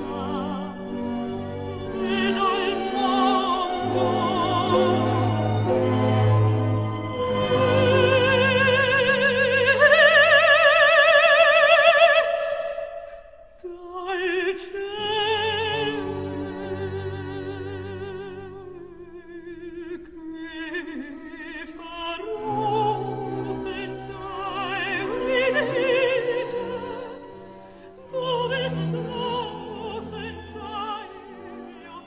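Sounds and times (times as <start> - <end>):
orchestral accompaniment: 0.0 - 10.8
operatic singing: 0.0 - 32.0.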